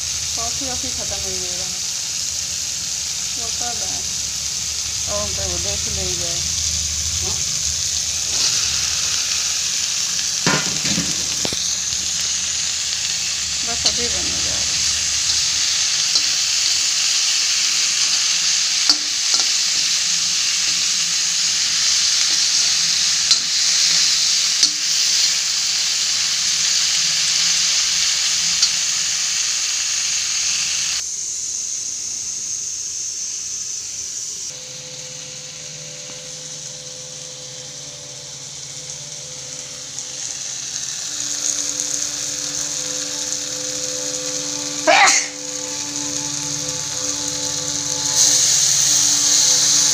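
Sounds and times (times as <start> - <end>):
okra sizzling in hot oil: 0.0 - 49.9
metal spatula clicking on pan: 18.9 - 19.5.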